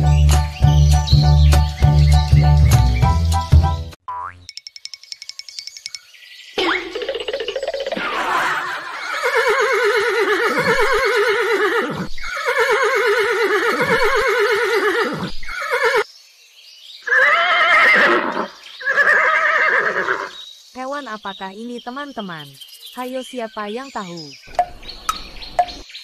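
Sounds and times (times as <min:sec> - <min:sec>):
horse whinnying: 0:08.0 - 0:16.0, 0:17.0 - 0:20.4.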